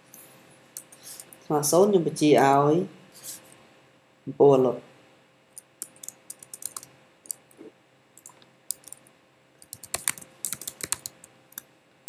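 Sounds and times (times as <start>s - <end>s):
typing on computer keyboard: 5.8s - 7.4s, 8.2s - 9.0s, 9.6s - 11.3s.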